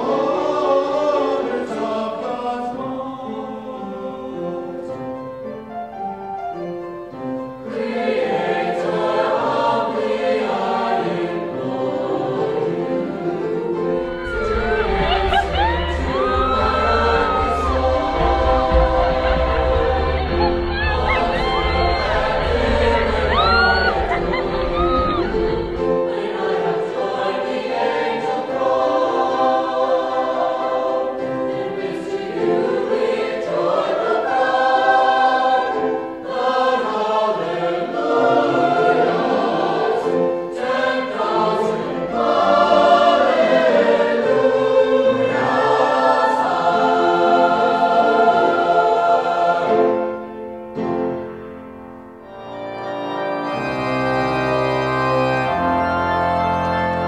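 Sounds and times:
choir singing in harmony: 0.0s - 57.0s
church organ chords: 50.8s - 57.0s.

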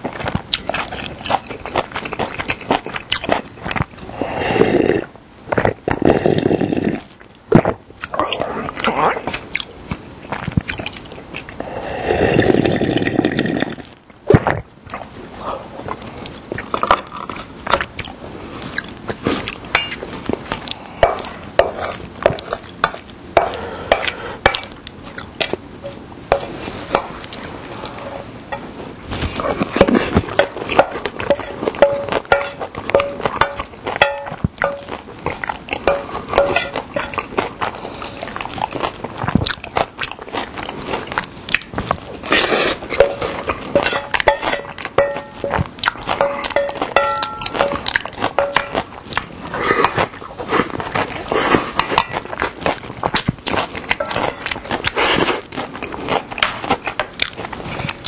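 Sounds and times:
chewing: 0.0s - 58.0s
slurping soup: 4.0s - 7.2s, 11.5s - 14.0s.

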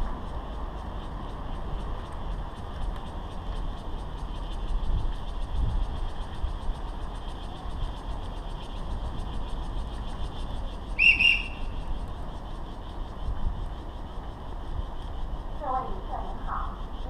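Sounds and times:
low wind rumble: 0.0s - 17.0s
high whistle blasts: 11.0s - 11.8s.

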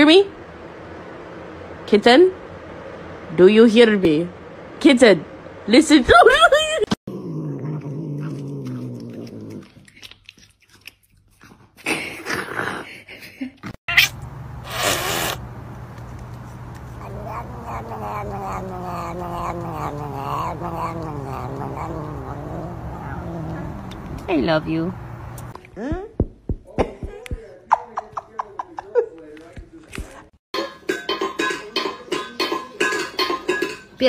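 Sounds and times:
cat growling: 7.1s - 9.9s, 16.9s - 24.3s
cat yowling: 16.9s - 23.9s.

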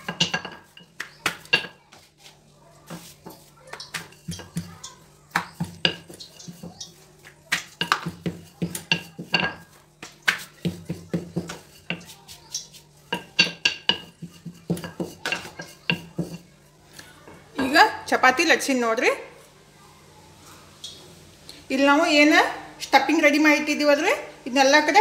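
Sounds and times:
rolling pin knocking on counter: 7.5s - 12.1s, 13.1s - 16.4s.

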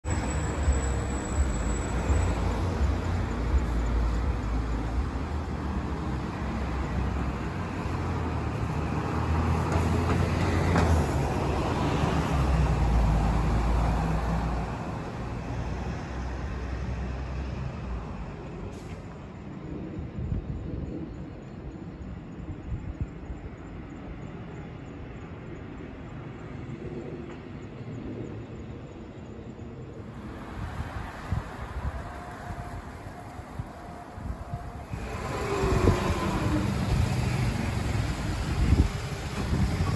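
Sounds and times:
road traffic engine rumble: 0.0s - 19.6s, 30.1s - 39.9s.

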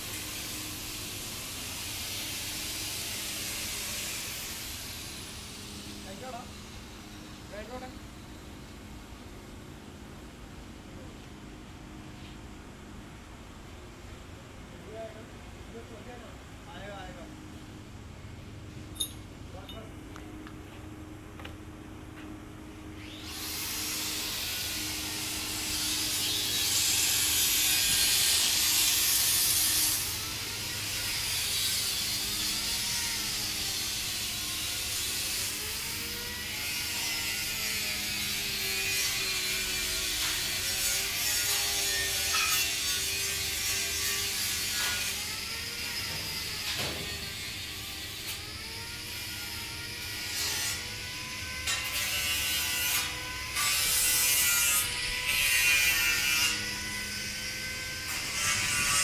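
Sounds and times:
angle grinder disc hissing on metal: 0.0s - 7.9s, 23.0s - 48.5s.

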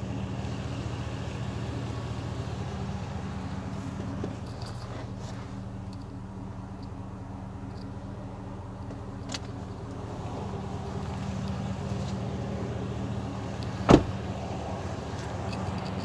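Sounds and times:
truck engine idling: 0.0s - 16.0s
truck door slamming: 13.8s - 14.2s.

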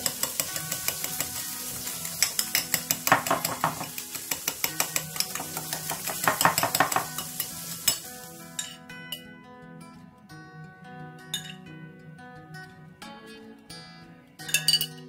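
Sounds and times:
fork clicking against a bowl: 0.0s - 8.8s.

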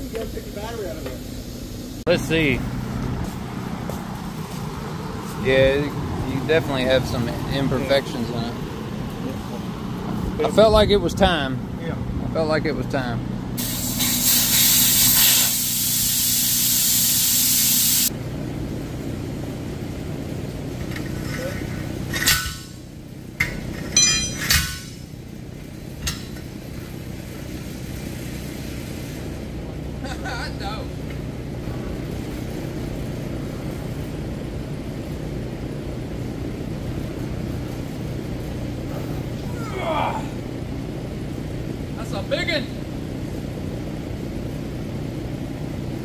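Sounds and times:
steady background noise: 0.0s - 14.0s, 18.0s - 46.0s
air hissing from tire valve: 13.6s - 18.1s.

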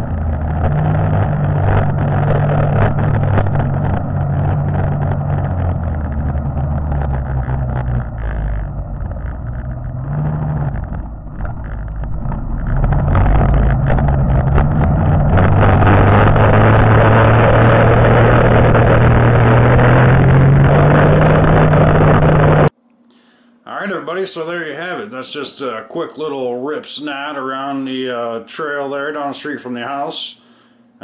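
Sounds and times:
muffled snowmobile engine running: 0.0s - 22.7s.

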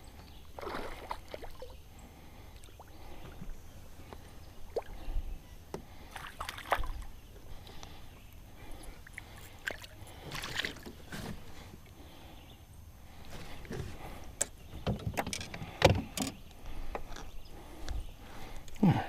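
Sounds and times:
water splashing against boat: 0.6s - 1.8s, 9.0s - 11.7s.

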